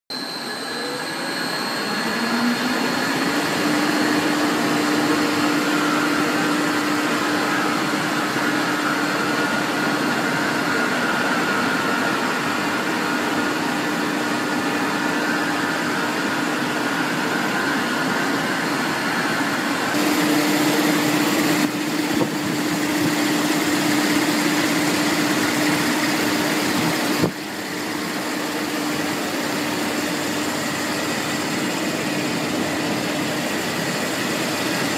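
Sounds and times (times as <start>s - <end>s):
machine whirring hum: 0.1s - 34.9s.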